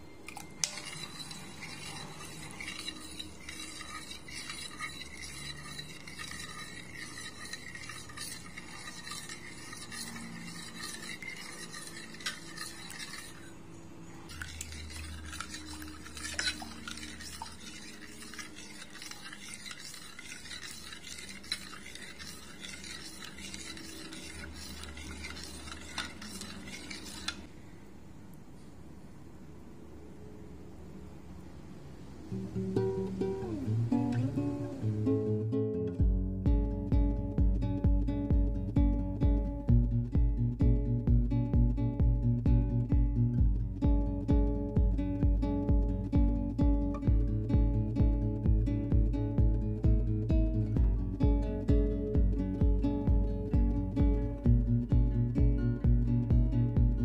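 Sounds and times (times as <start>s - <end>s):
metal spoon scraping a pot: 0.2s - 27.5s.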